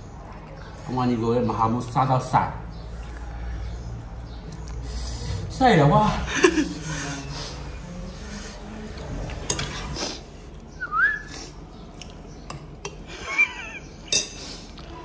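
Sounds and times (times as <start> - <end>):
cutlery clinking on plates: 9.3 - 10.0, 14.0 - 14.8.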